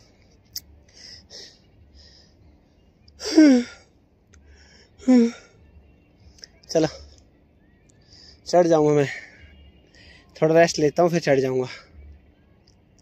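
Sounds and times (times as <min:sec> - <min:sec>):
man breathing hard: 0:00.8 - 0:02.6, 0:03.2 - 0:05.7, 0:08.0 - 0:10.4.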